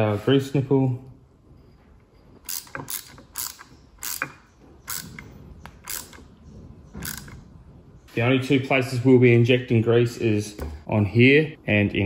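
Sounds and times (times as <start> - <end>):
metallic clicks and rasps: 2.2 - 6.3, 6.9 - 7.5.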